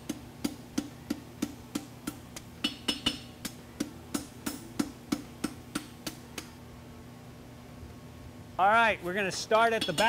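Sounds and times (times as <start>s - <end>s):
hammer striking hot metal on anvil: 0.4s - 6.5s, 9.8s - 10.0s.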